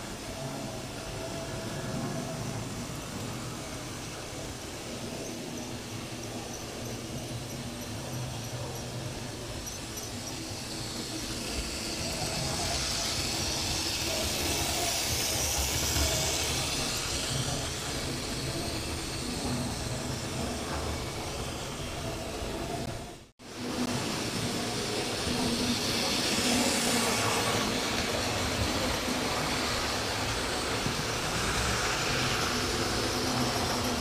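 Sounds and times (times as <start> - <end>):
hiss of passing train: 0.0 - 34.0
wheels on rail: 0.0 - 34.0
model train motor whirr: 8.4 - 21.9.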